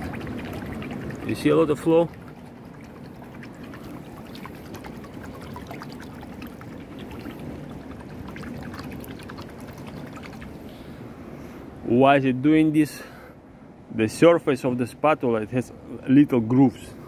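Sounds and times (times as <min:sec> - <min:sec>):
water dripping: 0:00.0 - 0:10.7
water splashing and sloshing: 0:00.0 - 0:11.8.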